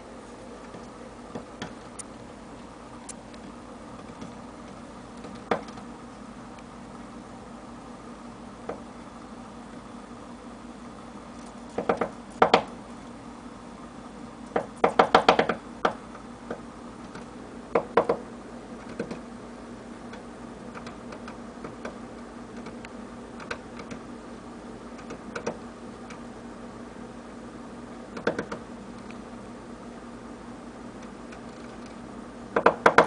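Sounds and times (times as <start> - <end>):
woodpecker tapping: 11.8 - 12.7, 14.5 - 16.6, 17.8 - 18.2, 32.6 - 33.0.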